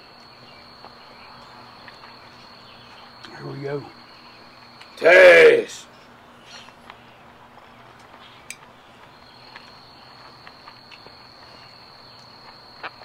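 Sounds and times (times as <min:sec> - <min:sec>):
high insect trill: 0:00.0 - 0:05.9, 0:09.0 - 0:13.0.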